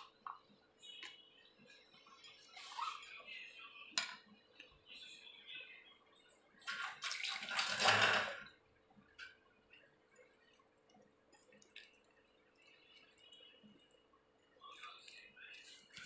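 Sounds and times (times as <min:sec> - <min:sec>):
hand mixing wet batter: 0:00.0 - 0:16.0
faint clicks: 0:08.9 - 0:16.0.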